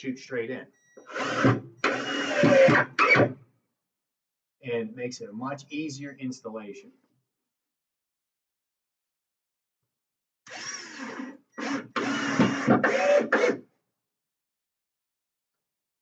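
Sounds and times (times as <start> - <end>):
cordless drill driving screw: 1.0 - 3.3, 10.5 - 13.6.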